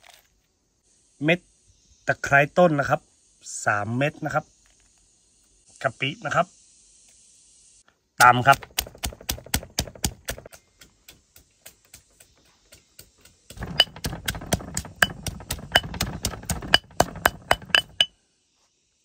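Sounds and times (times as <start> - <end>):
pestle pounding in a mortar: 8.2 - 18.1.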